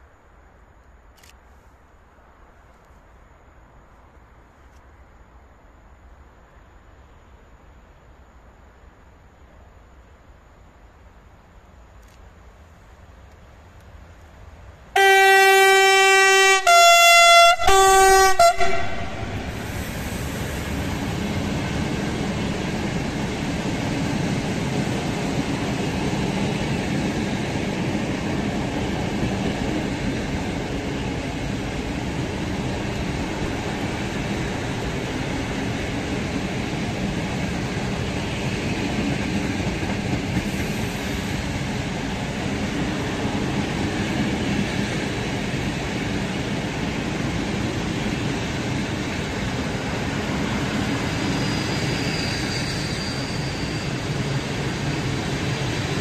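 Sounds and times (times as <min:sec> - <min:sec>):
freight train rumbling on rails: 0:09.4 - 0:56.0
two-tone locomotive horn: 0:15.0 - 0:19.6.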